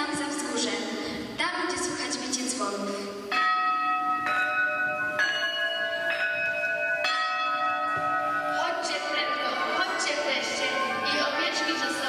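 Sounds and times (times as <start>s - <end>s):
bell tones playing slow melody: 3.3s - 12.0s.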